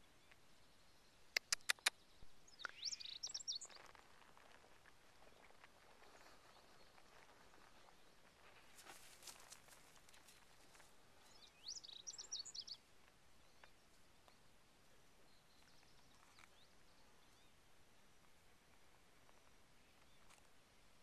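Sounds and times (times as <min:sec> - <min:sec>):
bird chirping: 0:00.0 - 0:04.0, 0:10.7 - 0:14.5, 0:15.2 - 0:17.7.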